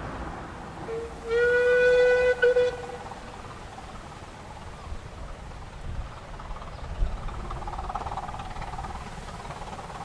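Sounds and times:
steam locomotive whistle: 0:00.8 - 0:03.2.

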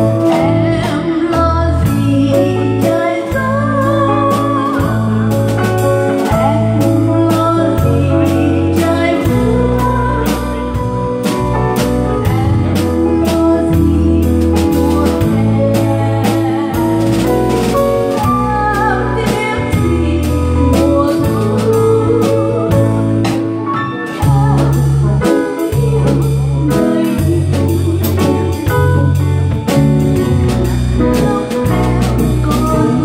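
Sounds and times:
woman singing: 0:00.0 - 0:29.3, 0:30.2 - 0:33.0
bass line: 0:00.0 - 0:33.0
drum kit beat: 0:00.0 - 0:33.0
piano: 0:00.0 - 0:33.0.

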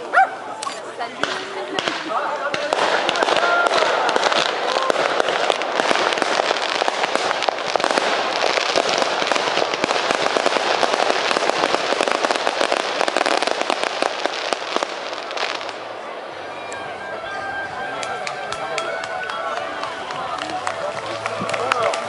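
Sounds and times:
fireworks bangs and crackling: 0:01.1 - 0:16.3.

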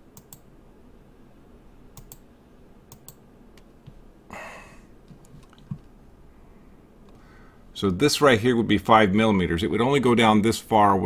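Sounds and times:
computer mouse clicking: 0:00.1 - 0:00.5, 0:02.0 - 0:02.2, 0:02.9 - 0:04.0, 0:05.1 - 0:05.9.

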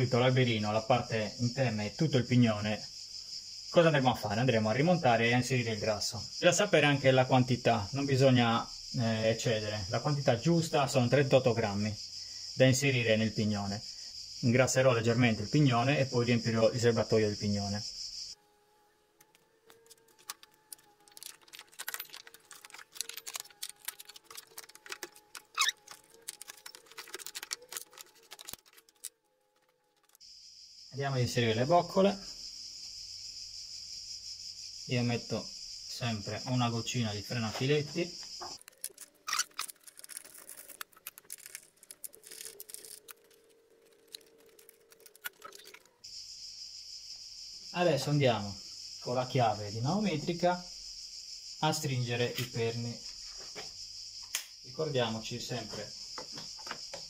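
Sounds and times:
small scraping handling noises: 0:19.2 - 0:30.2, 0:38.3 - 0:46.0
plastic and metal parts clattering: 0:19.7 - 0:30.2, 0:38.6 - 0:45.9.

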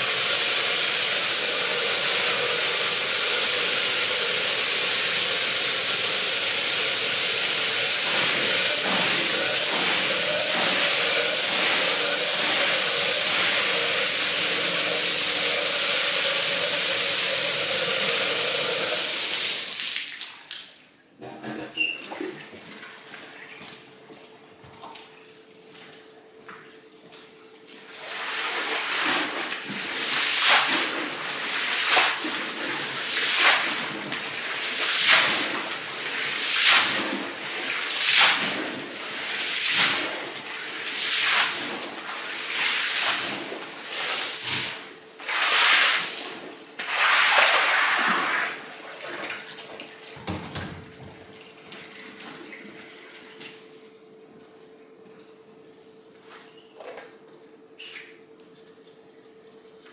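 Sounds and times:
steady machine hum: 0:00.1 - 0:19.6
water swishing in strokes: 0:27.8 - 0:49.6.

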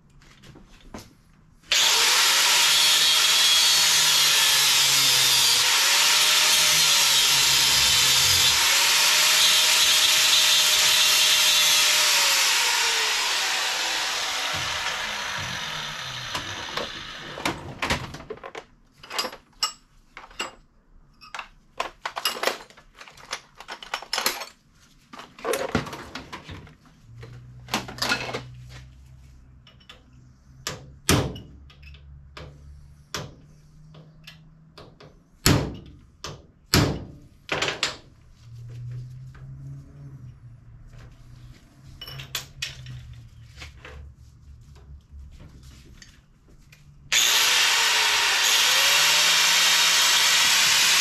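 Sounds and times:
angle grinder spinning down: 0:01.7 - 0:17.6, 0:47.1 - 0:51.0
metal tools clinking and clattering: 0:18.5 - 0:24.6, 0:42.0 - 0:43.2.

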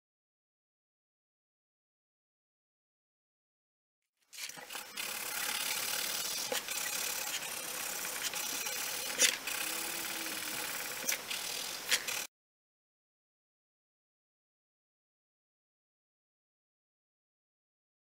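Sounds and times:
pencil sharp ticks: 0:04.5 - 0:12.3
pencil scratching on paper: 0:05.0 - 0:12.3.

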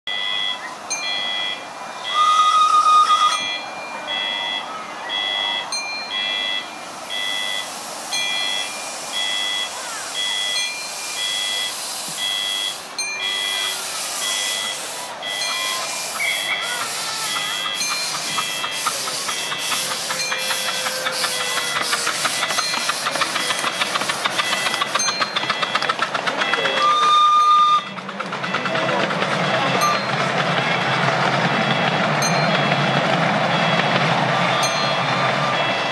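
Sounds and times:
steam locomotive exhaust beats: 0:00.1 - 0:35.9
short train whistle: 0:02.0 - 0:03.4, 0:26.8 - 0:27.9
repeating electronic beep: 0:03.1 - 0:27.9.

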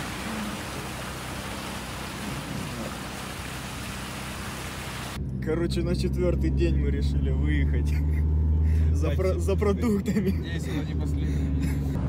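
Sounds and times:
tyres hissing on wet road: 0:00.0 - 0:05.2.

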